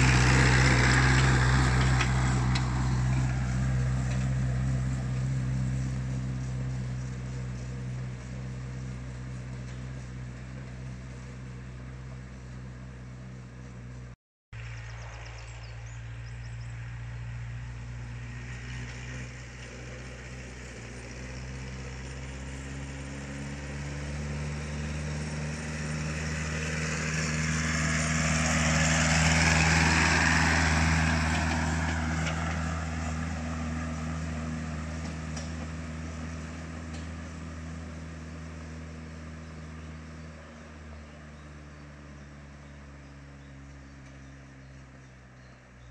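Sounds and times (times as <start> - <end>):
tractor diesel engine passing: 0.0 - 45.9.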